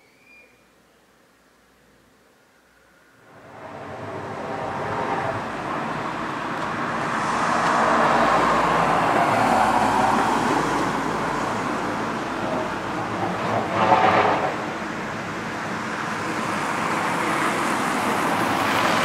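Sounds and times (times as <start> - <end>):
vehicle passing: 3.2 - 14.9.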